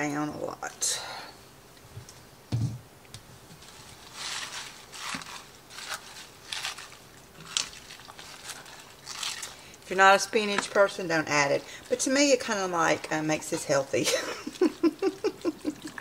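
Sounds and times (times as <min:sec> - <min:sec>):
soft low thump: 0:02.5 - 0:02.8.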